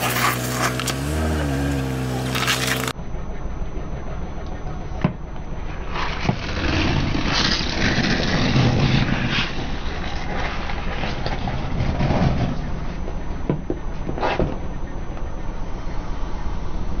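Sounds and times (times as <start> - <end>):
car engine humming: 0.0 - 17.0
tyre crunching plastic bottles: 2.2 - 2.9.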